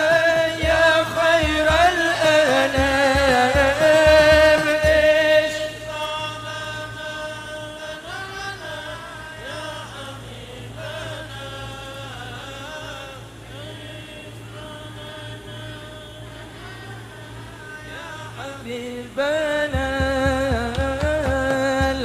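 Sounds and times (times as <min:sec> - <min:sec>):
devotional singing: 0:00.0 - 0:22.0
low regular beat: 0:00.6 - 0:05.2, 0:19.8 - 0:22.0.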